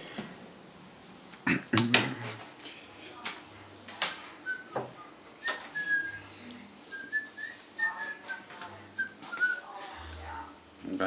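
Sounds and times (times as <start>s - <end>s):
person whistling a tune: 4.4s - 6.3s, 6.9s - 9.6s.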